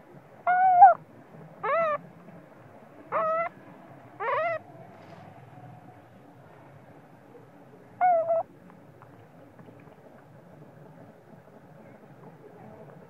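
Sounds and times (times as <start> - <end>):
baby monkey whimpering cries: 0.5 - 1.0, 1.6 - 2.0, 3.1 - 3.5.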